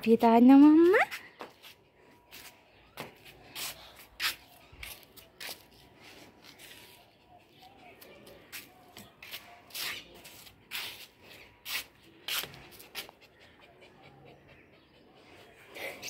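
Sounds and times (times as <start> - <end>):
dog panting: 12.7 - 16.0.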